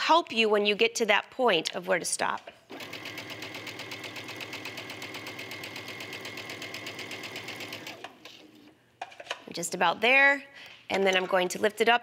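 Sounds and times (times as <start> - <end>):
sewing machine stitching: 2.7 - 8.2.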